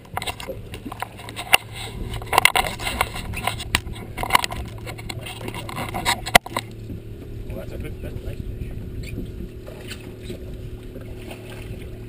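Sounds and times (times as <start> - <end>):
gear clicking and scraping: 0.0 - 6.8
steady low hum: 0.0 - 12.0.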